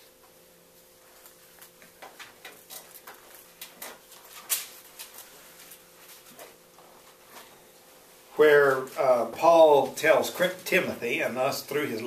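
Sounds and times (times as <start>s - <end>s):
faint room hum: 0.0s - 12.0s
paper pages rustling: 2.6s - 7.5s.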